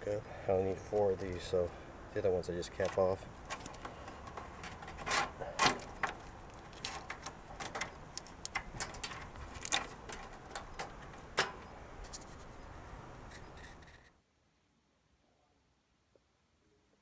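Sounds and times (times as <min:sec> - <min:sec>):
wires clicking and rustling: 0:02.7 - 0:14.0.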